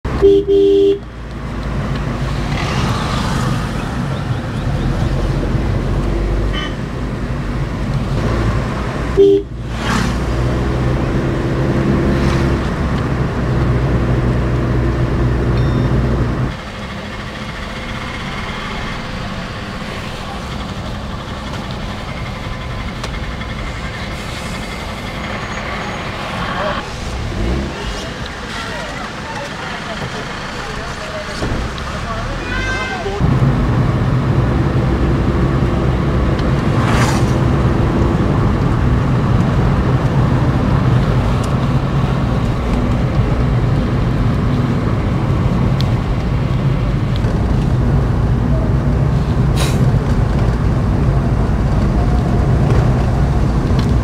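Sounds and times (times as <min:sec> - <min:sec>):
road noise: 0:00.0 - 0:54.0
horn toot: 0:00.2 - 0:01.0, 0:09.2 - 0:09.6
vehicle engine running: 0:10.4 - 0:32.3.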